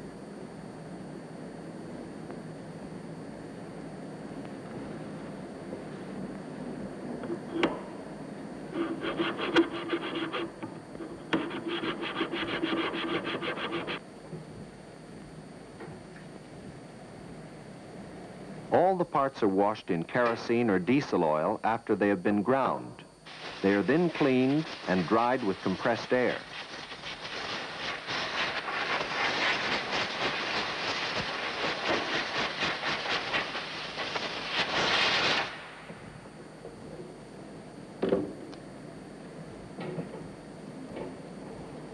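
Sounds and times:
metal scraping with grinding tool: 8.7s - 14.0s
compressed air blow gun hissing: 23.3s - 35.6s.

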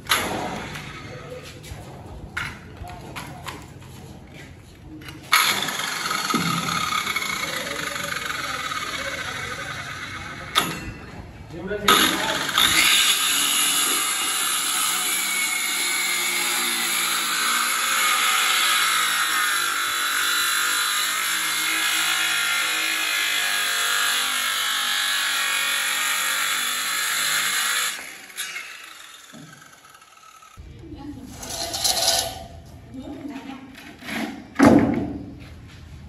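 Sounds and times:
circular saw cutting wood: 5.3s - 10.8s, 11.9s - 30.6s.

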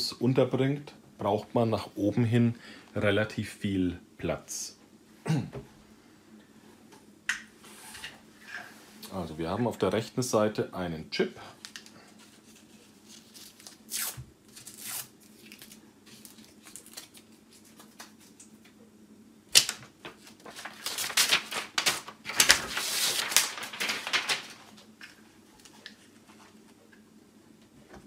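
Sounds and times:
paper rustling and crinkling: 11.6s - 18.7s, 19.6s - 26.9s
dense paper crackling: 11.7s - 18.4s, 19.6s - 26.5s.

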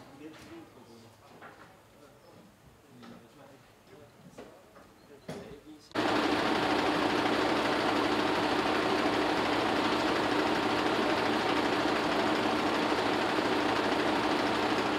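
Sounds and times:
engine idling: 6.0s - 14.9s.

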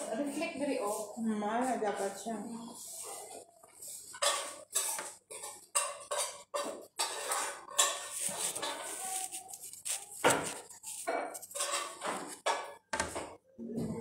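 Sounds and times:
dishes and cutlery clattering: 3.1s - 9.5s, 10.2s - 14.0s.

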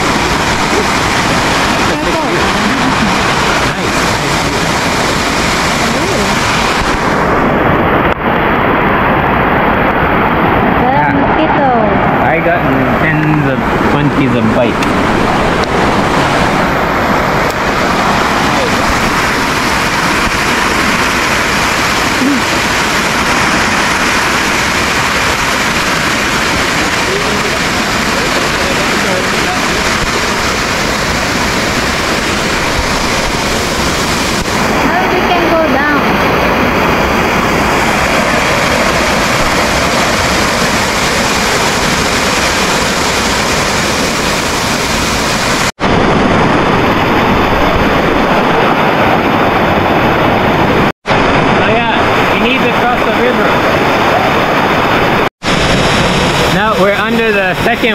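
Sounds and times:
waterfall rushing: 0.0s - 57.9s.

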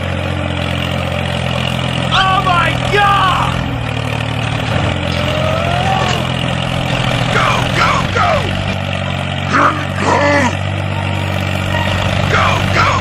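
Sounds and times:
tractor engine running: 0.0s - 13.0s
gliding voice-like cries: 5.2s - 6.4s.

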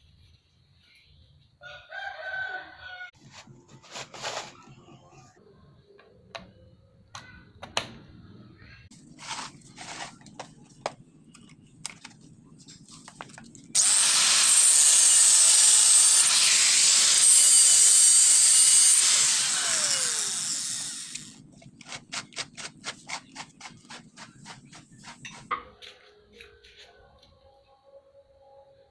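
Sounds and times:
angle grinder cutting metal: 13.8s - 21.4s
grinder spinning down: 13.8s - 21.4s.

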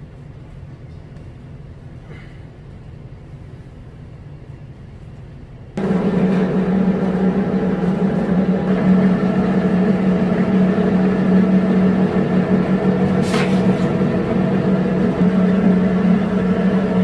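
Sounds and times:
machine humming loudly: 5.8s - 17.0s.

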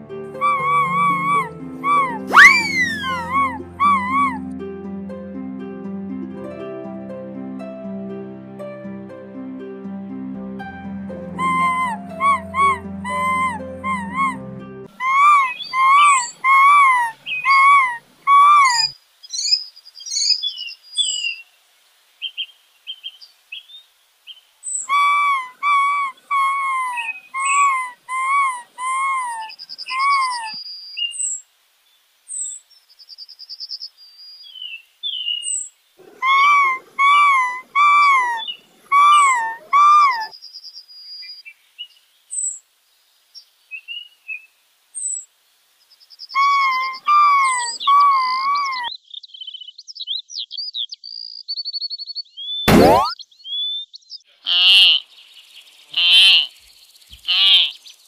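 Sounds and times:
small birds chirping: 0.4s - 4.4s, 11.4s - 58.0s
squirrel calling: 0.4s - 4.4s, 11.4s - 21.2s, 24.7s - 31.4s, 35.1s - 40.3s, 46.3s - 48.9s, 54.5s - 55.0s, 55.9s - 56.5s, 57.1s - 57.8s.

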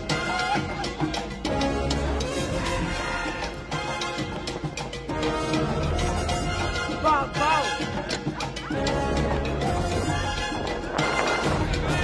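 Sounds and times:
music soundtrack: 0.0s - 12.0s.

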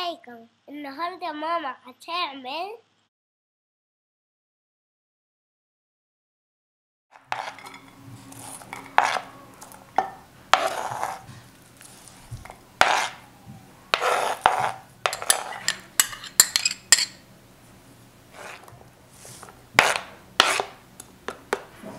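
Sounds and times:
spoon scraping cutting board: 7.2s - 13.2s, 13.9s - 17.2s, 18.3s - 20.8s
spoon clinking against dish: 7.4s - 8.0s, 15.1s - 17.2s.

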